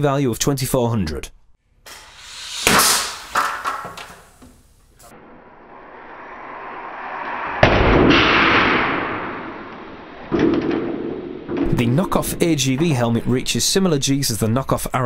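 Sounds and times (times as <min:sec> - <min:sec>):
helmet striking metal anvil: 0:01.9 - 0:03.9
rush of noise: 0:01.9 - 0:04.1, 0:05.1 - 0:11.6
loud rumbling decay: 0:05.1 - 0:12.8.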